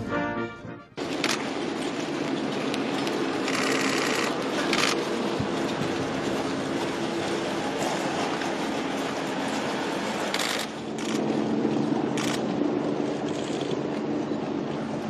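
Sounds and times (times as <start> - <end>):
brass band music: 0.0 - 1.0
hooves clattering on gravel: 1.0 - 12.0.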